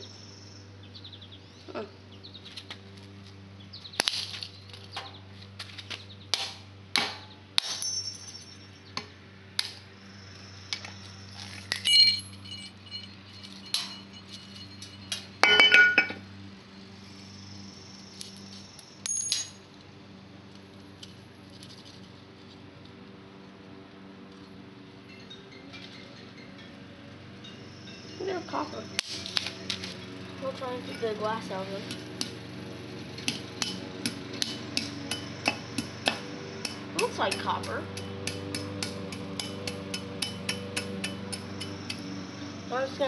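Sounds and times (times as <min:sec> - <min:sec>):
broken glass clinking: 0:07.7 - 0:08.7, 0:11.7 - 0:16.2
sharp taps and knocks: 0:33.2 - 0:42.0.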